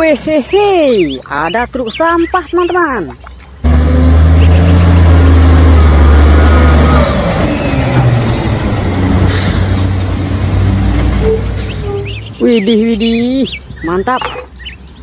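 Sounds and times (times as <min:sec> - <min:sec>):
garbage truck diesel engine: 0:03.6 - 0:12.4.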